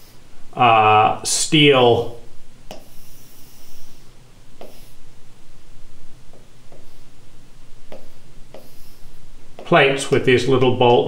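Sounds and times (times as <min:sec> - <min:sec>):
low room hiss: 0:00.0 - 0:11.0
pen drawing on whiteboard: 0:02.7 - 0:04.0, 0:04.6 - 0:05.0, 0:07.9 - 0:09.7
light taps: 0:07.9 - 0:08.8.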